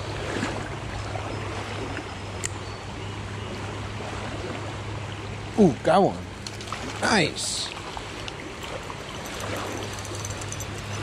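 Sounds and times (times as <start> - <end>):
stream running over rocks: 5.6 - 11.0.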